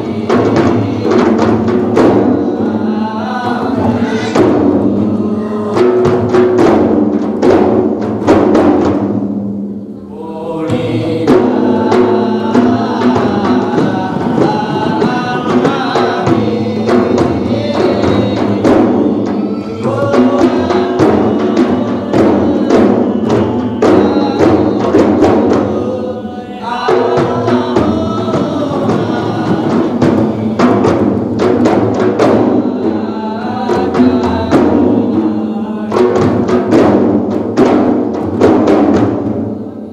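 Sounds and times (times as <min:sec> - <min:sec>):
frame drums beating: 0:00.0 - 0:39.9
group of voices chanting: 0:10.0 - 0:31.0.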